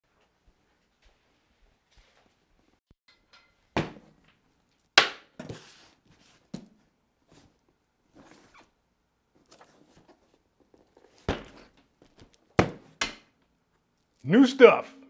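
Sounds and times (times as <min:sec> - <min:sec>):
cardboard rustle: 0:09.4 - 0:12.6.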